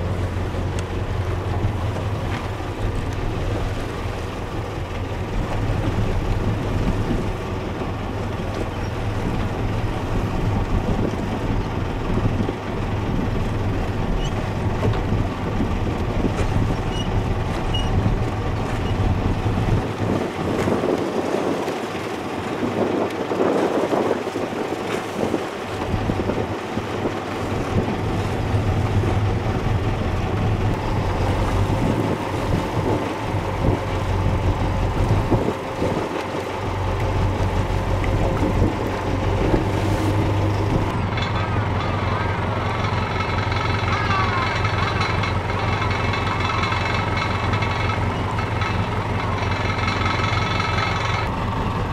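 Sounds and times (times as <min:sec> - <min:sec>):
wind on microphone: 0:00.0 - 0:41.0
motorboat engine drone: 0:00.0 - 0:51.9
rushing water: 0:00.0 - 0:51.9.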